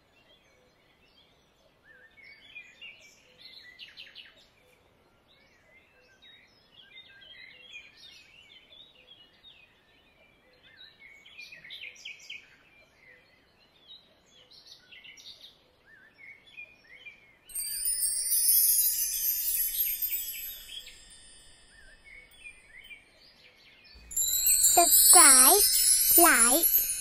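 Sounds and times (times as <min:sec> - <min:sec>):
bright shimmering chime: 0:17.5 - 0:22.7, 0:24.0 - 0:27.0.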